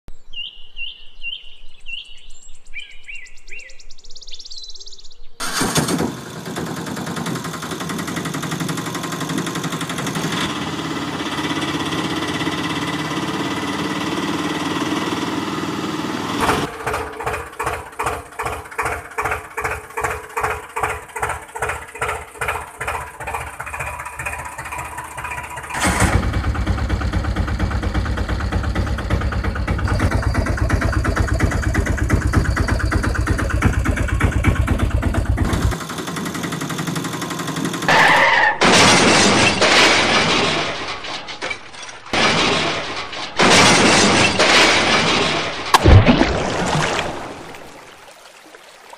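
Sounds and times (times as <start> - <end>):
tractor engine chugging: 5.4 - 38.1
engine running steadily: 5.4 - 38.2
deep engine drone: 23.6 - 37.9.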